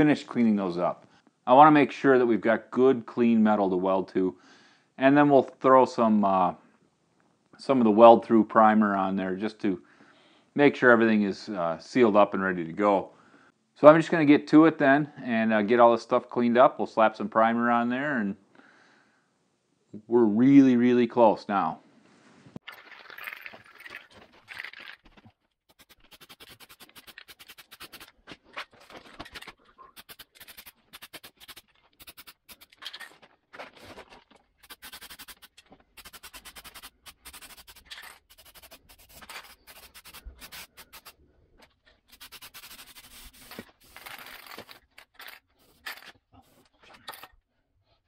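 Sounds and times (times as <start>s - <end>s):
aerosol can spraying: 25.7s - 28.1s, 30.0s - 32.7s, 34.6s - 41.2s, 42.1s - 44.0s.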